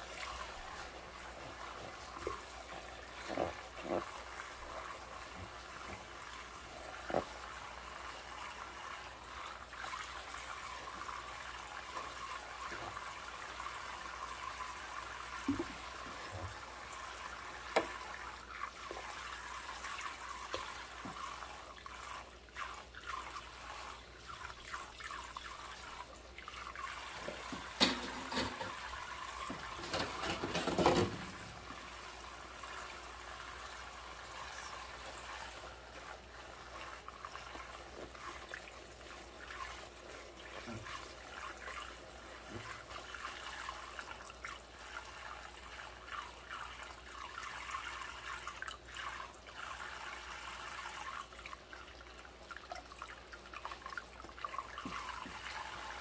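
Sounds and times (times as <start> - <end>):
tap water trickling into sink: 0.0 - 56.0
sponge scrubbing utensils: 27.2 - 31.7.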